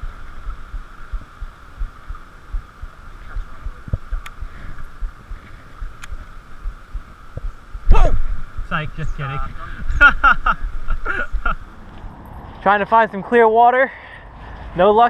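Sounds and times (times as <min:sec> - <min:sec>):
muffled low thumps on camera: 0:00.0 - 0:12.2
faint steady hum: 0:00.0 - 0:15.0
sharp clicks: 0:03.9 - 0:05.2.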